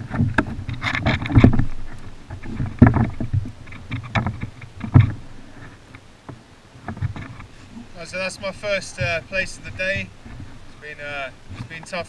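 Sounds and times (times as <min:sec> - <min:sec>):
knocks and thuds on a kayak: 0:00.0 - 0:07.5, 0:09.0 - 0:10.7
heavy thuds: 0:06.9 - 0:11.7.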